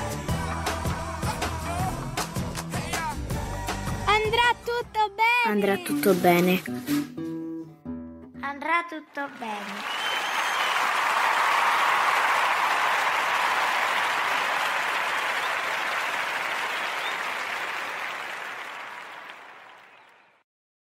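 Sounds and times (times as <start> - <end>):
crowd clapping: 9.1 - 20.4.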